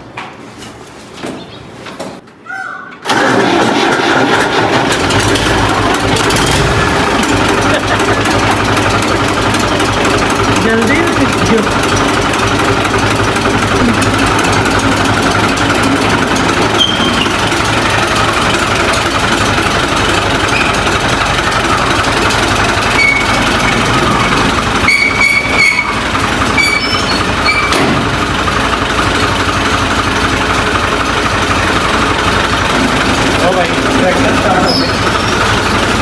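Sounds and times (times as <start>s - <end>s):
tractor diesel engine running: 3.0s - 36.0s
short high squeaks: 16.7s - 17.5s, 22.9s - 23.5s, 24.8s - 27.8s, 34.6s - 35.4s.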